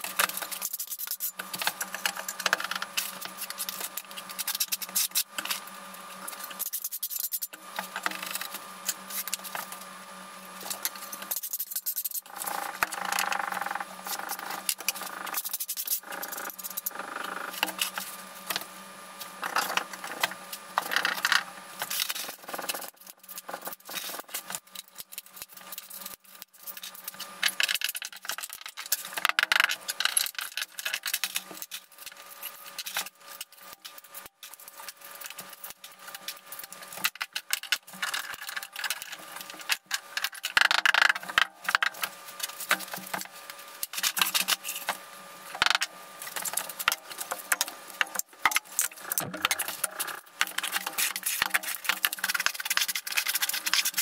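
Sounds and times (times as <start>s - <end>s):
tiles being handled: 48.9s - 54.0s.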